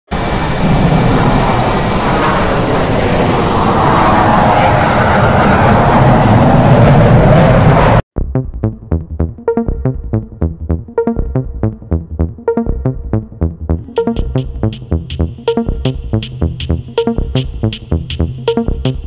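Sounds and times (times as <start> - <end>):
loud rushing and rumbling: 0.1 - 8.0
electronic music: 8.2 - 19.0.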